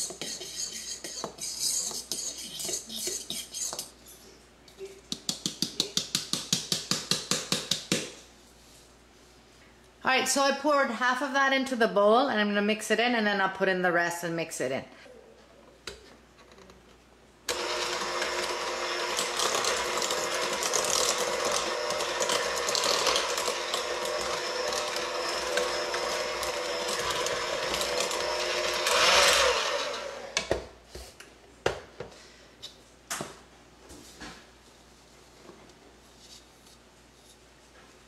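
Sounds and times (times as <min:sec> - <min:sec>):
electric hand mixer running: 0:17.5 - 0:30.4.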